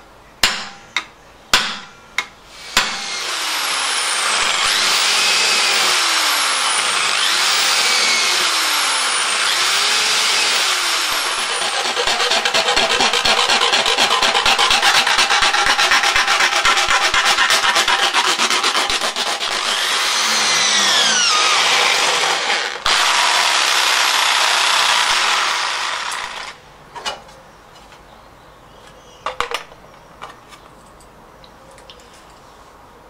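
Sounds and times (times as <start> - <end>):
electric drill boring metal: 2.6 - 26.6
file rasping on metal: 10.4 - 21.9.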